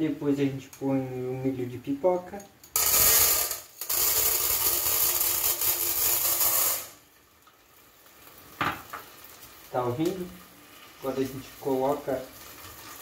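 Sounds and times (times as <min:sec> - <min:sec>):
popcorn kernels rattling into metal pot: 0:02.7 - 0:07.0.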